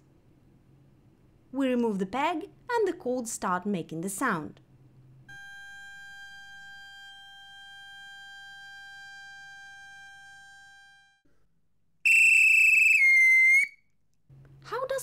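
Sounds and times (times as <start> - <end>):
loud shrill whistle: 12.0 - 13.8.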